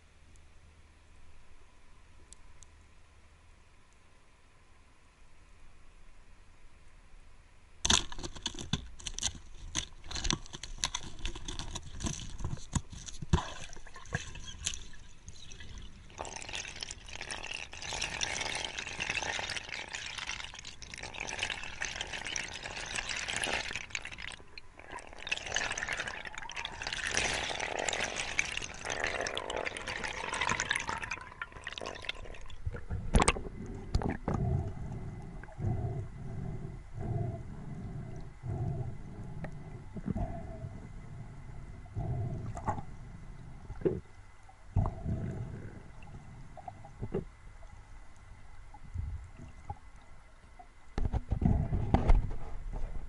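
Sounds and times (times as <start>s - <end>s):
bubbling water: 10.1s - 52.3s.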